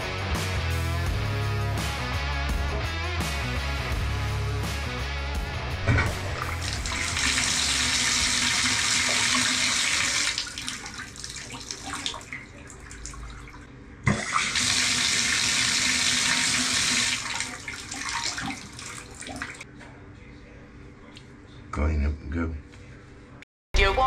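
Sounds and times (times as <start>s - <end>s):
water running from bathtub spout: 5.9s - 19.6s.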